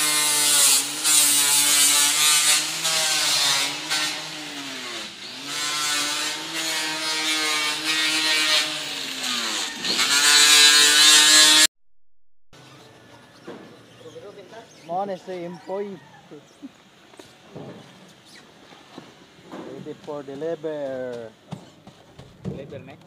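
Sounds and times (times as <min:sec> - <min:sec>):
angle grinder grinding metal: 0:00.0 - 0:11.7.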